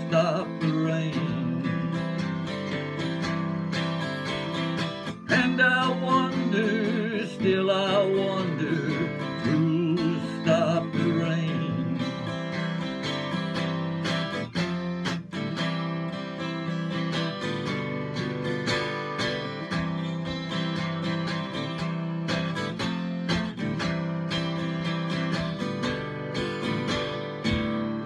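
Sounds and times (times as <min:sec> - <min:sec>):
man singing: 0:00.0 - 0:02.7, 0:05.1 - 0:12.8
acoustic guitar strumming: 0:00.0 - 0:28.0.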